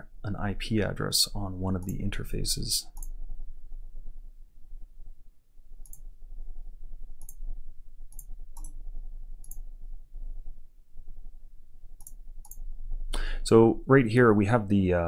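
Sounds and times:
low room hum: 0:00.0 - 0:15.0
computer mouse clicking: 0:01.8 - 0:02.1, 0:03.0 - 0:03.2, 0:05.8 - 0:06.1, 0:07.2 - 0:07.4, 0:08.1 - 0:08.8, 0:09.4 - 0:09.6, 0:12.0 - 0:12.6.

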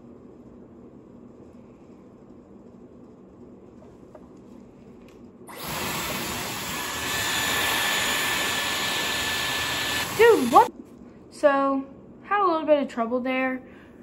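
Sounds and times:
hair styler fan blowing air: 0:05.5 - 0:10.7.

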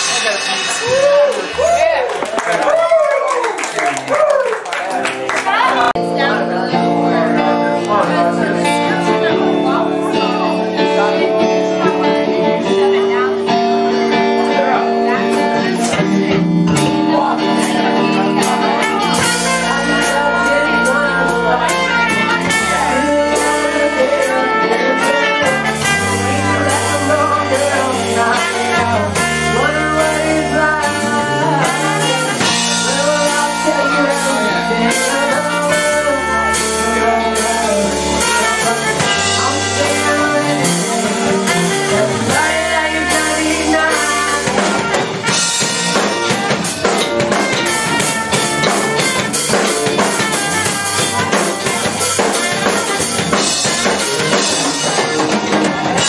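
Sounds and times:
bass guitar: 0:00.0 - 0:04.4, 0:05.0 - 0:56.0
drum kit: 0:00.0 - 0:56.0
electric guitar: 0:00.0 - 0:56.0
person singing: 0:05.5 - 0:56.0
trumpet: 0:17.6 - 0:56.0.

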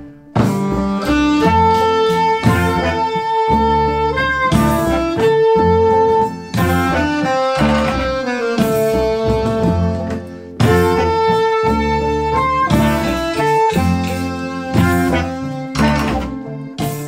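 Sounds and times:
folk band with horn section: 0:00.1 - 0:17.0.

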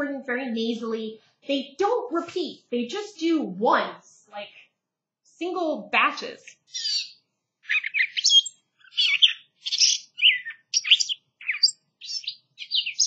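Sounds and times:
bird song from phone: 0:06.6 - 0:13.0.

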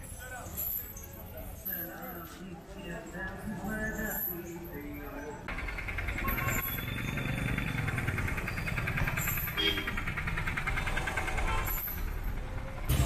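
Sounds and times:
vehicle engine throbbing: 0:05.5 - 0:13.0.

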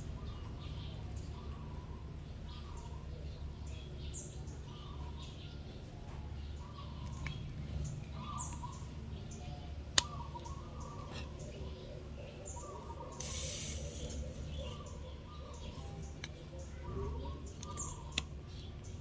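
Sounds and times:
low steady hum: 0:00.0 - 0:19.0
small birds chirping: 0:00.0 - 0:19.0
brief hiss: 0:13.2 - 0:14.2.

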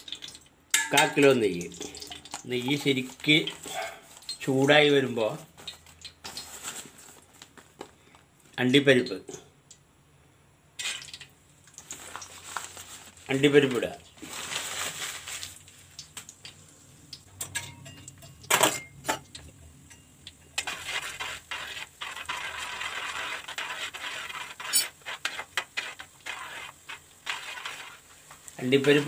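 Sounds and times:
nuts sizzling in oil: 0:10.8 - 0:18.5, 0:19.4 - 0:29.0
metal spoon scraping pan: 0:19.9 - 0:29.0.

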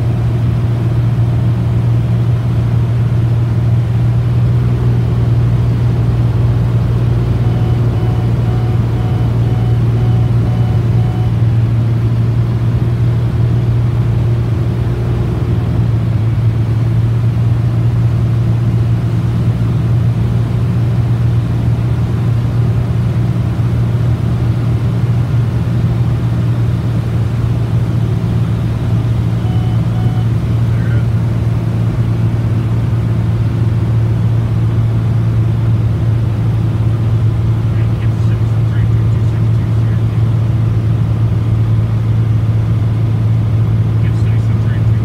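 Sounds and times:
aircraft engine and propeller drone: 0:00.0 - 0:45.0
faint repeated beeping: 0:07.2 - 0:11.6, 0:29.3 - 0:31.1.

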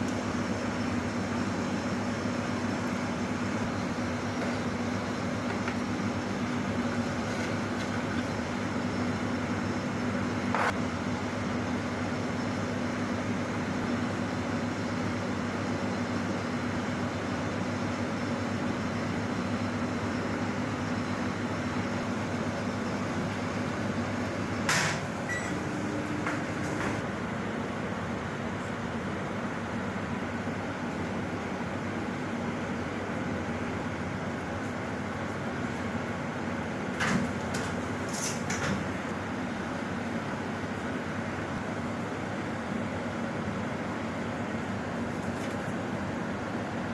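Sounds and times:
steady mechanical hum: 0:00.0 - 0:46.9.

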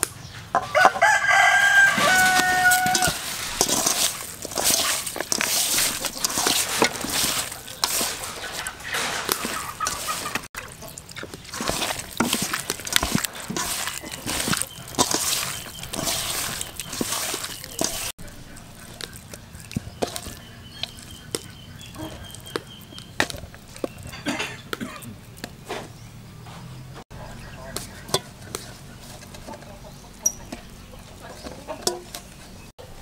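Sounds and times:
hand squelching minced meat: 0:01.4 - 0:24.2.

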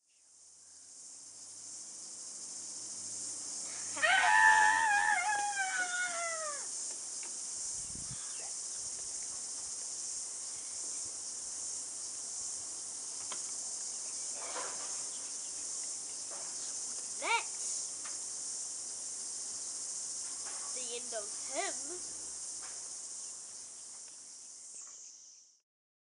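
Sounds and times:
steady high hiss: 0:00.0 - 0:25.6
child screaming: 0:04.0 - 0:06.7, 0:17.2 - 0:17.5.

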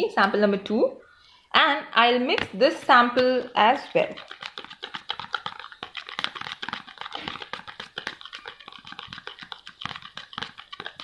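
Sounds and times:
spoon scraping plastic tub: 0:02.3 - 0:11.0.

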